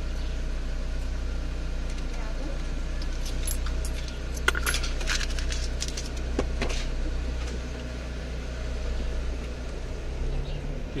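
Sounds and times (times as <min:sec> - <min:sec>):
car engine idling: 0:00.0 - 0:11.0
coins clinking: 0:03.0 - 0:06.1.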